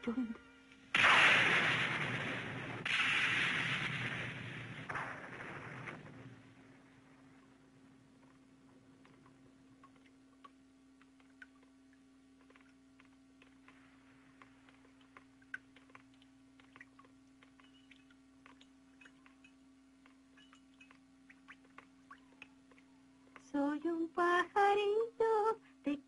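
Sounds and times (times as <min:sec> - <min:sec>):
faint steady hum: 0:00.0 - 0:26.0
soft clicks and crackles: 0:01.8 - 0:23.6.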